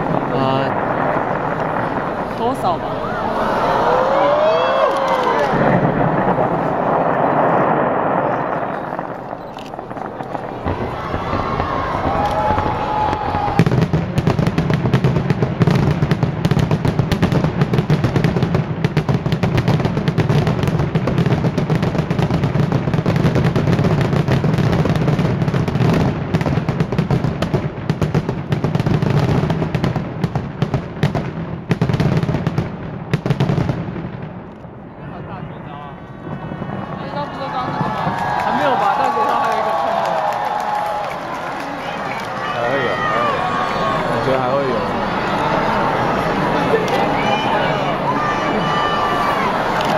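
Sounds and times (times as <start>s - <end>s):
steady low rumble: 0.0s - 13.5s
fireworks crackling and banging: 0.0s - 49.9s.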